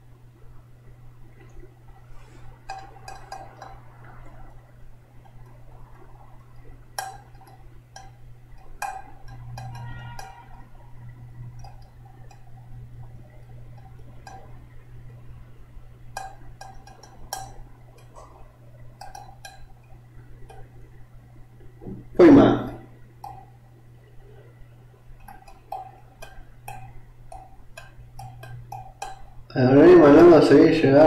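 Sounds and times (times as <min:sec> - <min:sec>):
steady low hum: 0:00.0 - 0:31.0
light clicks and clinks at a desk: 0:02.2 - 0:04.6, 0:05.2 - 0:14.8, 0:16.1 - 0:21.0, 0:25.2 - 0:29.5.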